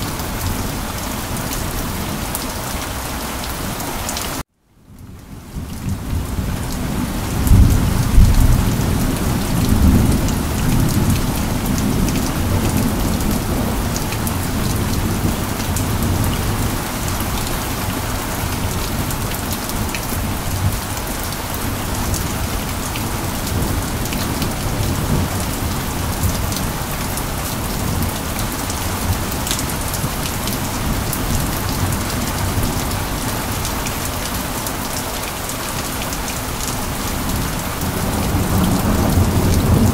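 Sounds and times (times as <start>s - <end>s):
steady rain falling: 0.0s - 39.9s
low rumble of thunder: 5.0s - 34.0s, 36.8s - 39.9s.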